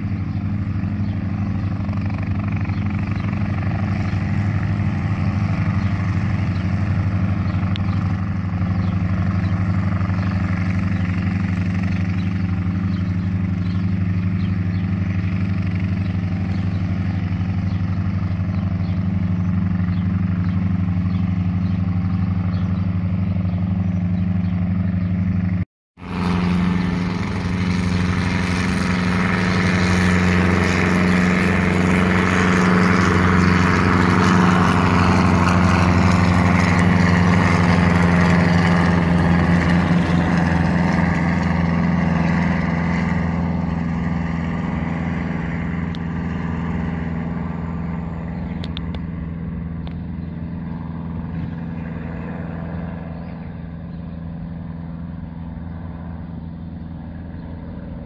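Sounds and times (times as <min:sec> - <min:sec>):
helicopter engine and rotor: 0:00.0 - 0:58.0.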